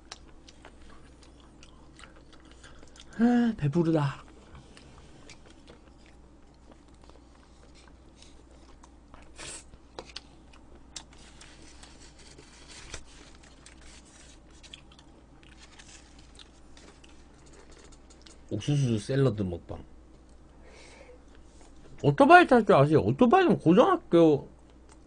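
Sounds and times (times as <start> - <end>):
faint chewing: 0.0 - 3.2, 4.2 - 18.5, 24.6 - 25.0.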